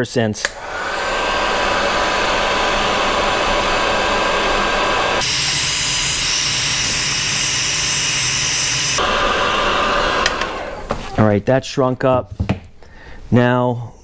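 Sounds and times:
heat gun blowing: 0:00.4 - 0:11.1.

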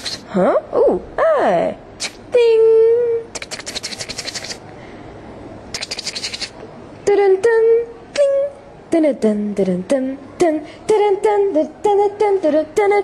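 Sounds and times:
rapid clicking rattle vocal: 0:00.0 - 0:00.2, 0:03.4 - 0:04.6, 0:05.8 - 0:06.6
short pitched cartoon calls: 0:00.0 - 0:00.3, 0:02.0 - 0:02.2, 0:05.7 - 0:06.6.

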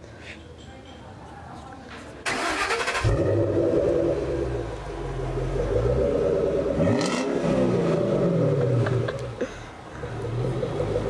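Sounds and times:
car engine starting and idling: 0:02.2 - 0:11.0.

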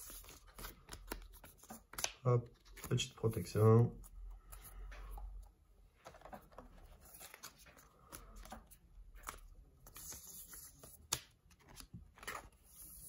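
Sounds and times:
trading cards rustling: 0:00.0 - 0:05.1, 0:06.0 - 0:13.0.

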